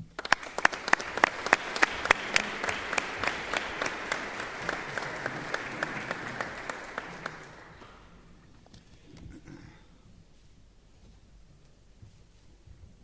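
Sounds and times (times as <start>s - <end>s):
audience applauding: 0.0s - 8.2s
sharp individual claps: 0.0s - 8.2s.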